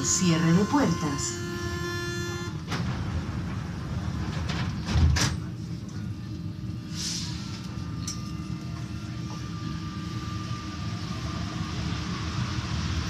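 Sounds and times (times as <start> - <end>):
metro train running rumble: 0.0 - 13.0
short hiss: 6.9 - 7.4.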